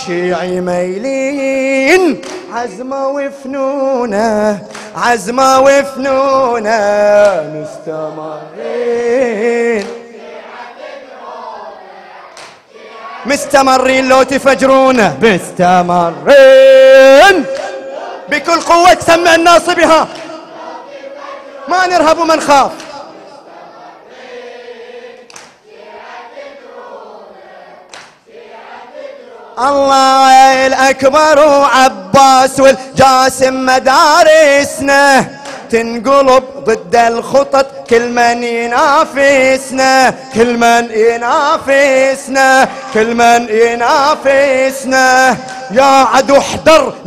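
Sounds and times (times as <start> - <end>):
man chanting over a microphone: 0.0 - 10.2, 13.2 - 20.6, 21.6 - 23.4, 29.6 - 47.0.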